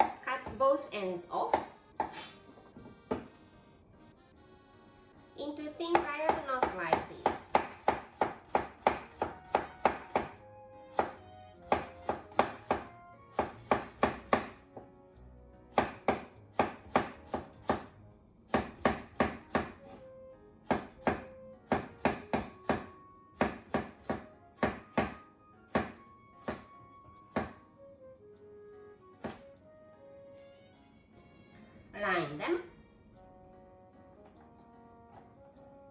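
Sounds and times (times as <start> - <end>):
soft background music: 0.0 - 35.9.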